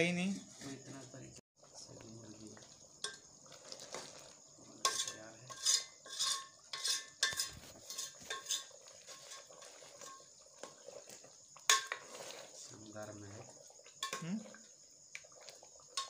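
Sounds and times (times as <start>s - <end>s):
metal spoon scraping a pot: 3.0s - 12.7s, 14.0s - 14.6s.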